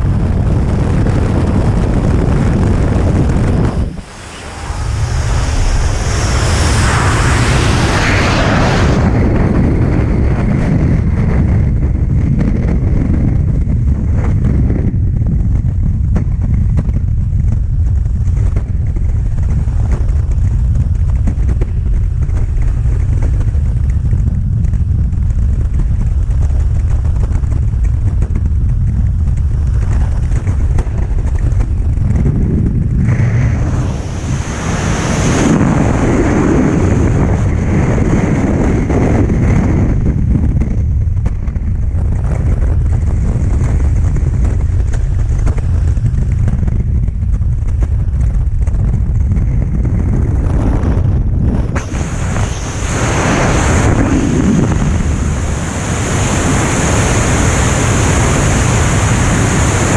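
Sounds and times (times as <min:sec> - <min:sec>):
freefall air rushing: 0:00.0 - 0:11.3, 0:25.3 - 0:59.9.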